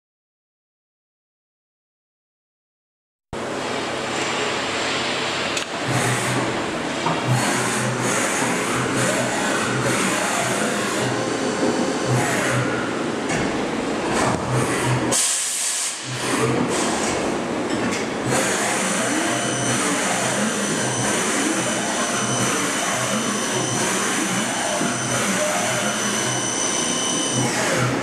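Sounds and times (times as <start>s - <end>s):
pulsing machine hum: 3.4s - 15.2s, 16.0s - 28.0s
machine drive whines: 5.5s - 28.0s
air hiss: 15.2s - 16.1s.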